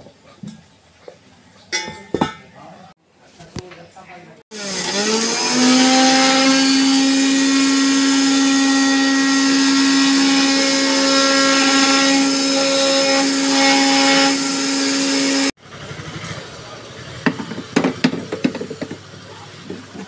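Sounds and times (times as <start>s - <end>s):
mixer grinder motor whine: 4.5s - 15.6s.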